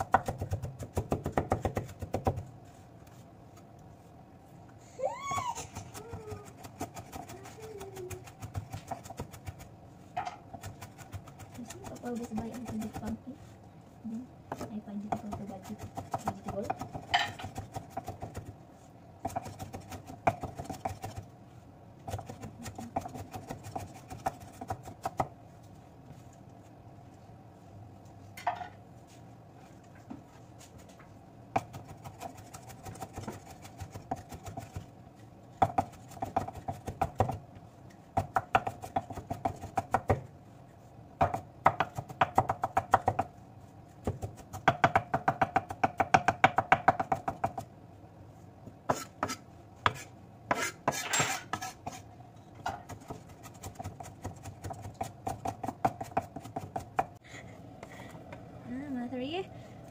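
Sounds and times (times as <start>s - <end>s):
knife chopping on wooden board: 0.0s - 2.5s, 14.5s - 18.5s, 19.2s - 21.2s, 22.1s - 25.3s, 35.6s - 37.4s, 38.1s - 40.3s, 41.2s - 43.3s, 44.0s - 47.7s, 48.9s - 52.0s, 52.6s - 57.1s.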